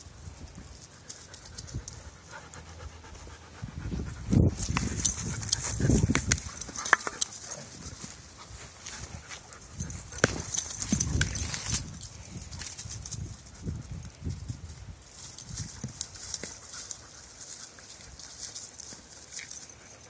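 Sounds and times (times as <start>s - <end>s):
dog panting: 0.9s - 10.2s
scuffing over dry leaves: 4.2s - 20.0s.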